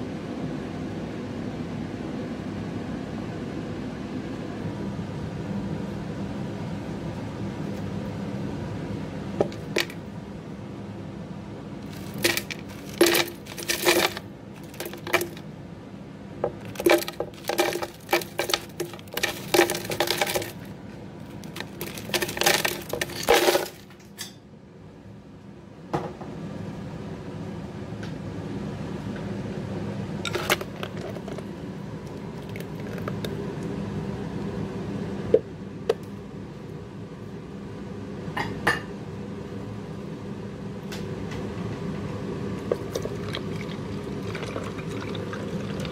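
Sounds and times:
steady low hum: 0.0 - 45.9
ice cubes clattering into blender: 11.9 - 15.4, 16.6 - 20.7, 21.4 - 23.9, 30.3 - 31.4.

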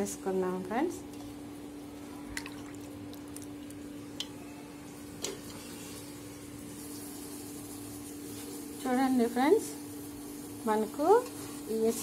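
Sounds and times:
steady hum: 0.0 - 6.9
water drips: 2.4 - 4.3.

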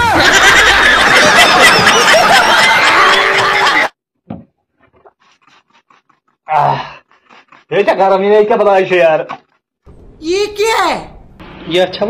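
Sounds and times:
audience laughing and clapping: 0.0 - 4.0.

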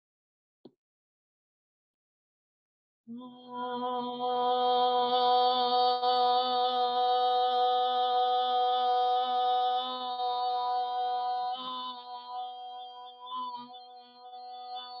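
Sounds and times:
woman singing long steady tone: 3.1 - 15.0.

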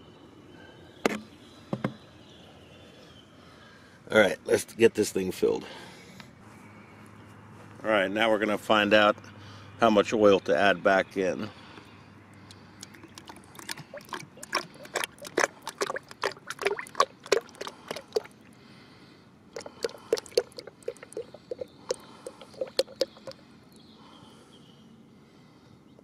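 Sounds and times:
oil glugging while pouring: 12.4 - 18.6, 19.5 - 23.4.

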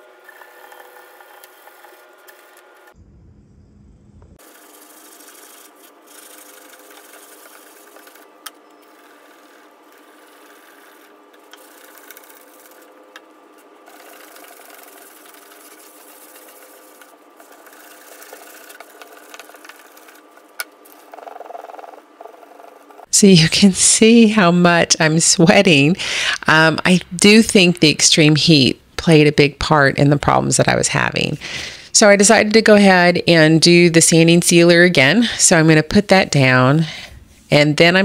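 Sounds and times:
steady hum: 0.0 - 32.5
sandpaper scratching on wood: 4.4 - 13.0, 13.6 - 23.0.

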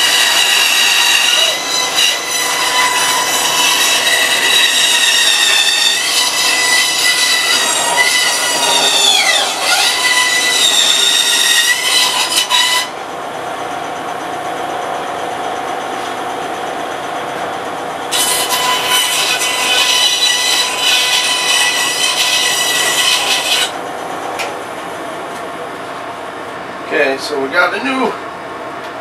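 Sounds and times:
bandsaw cutting wood: 0.0 - 12.9, 18.1 - 23.8
bandsaw humming: 0.0 - 13.1, 18.0 - 24.4.

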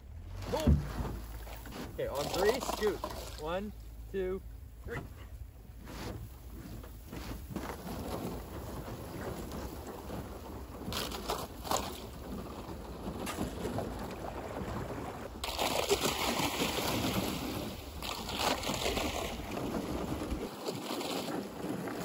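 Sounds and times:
canoe hull rushing and scraping: 0.0 - 22.0
canoe hull knocking on ice: 0.5 - 3.3, 6.0 - 16.2.

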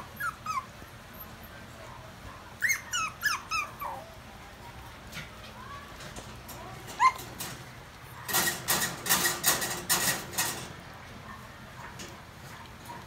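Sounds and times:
dog squeaking: 0.0 - 1.4, 2.6 - 4.1, 7.0 - 7.3.

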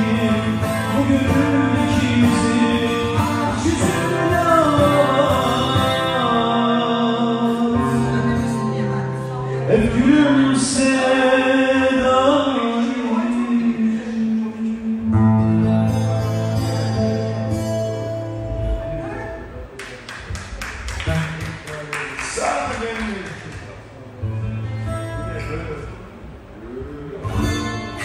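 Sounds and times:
man singing: 0.0 - 8.4, 9.6 - 17.2
guitar: 0.0 - 28.0.

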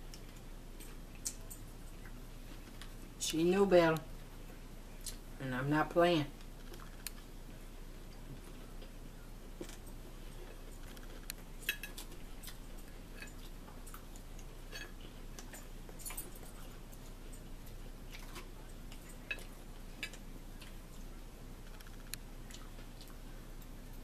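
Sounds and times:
low steady hum: 0.0 - 24.0
forks clinking on dishes: 11.6 - 12.1.

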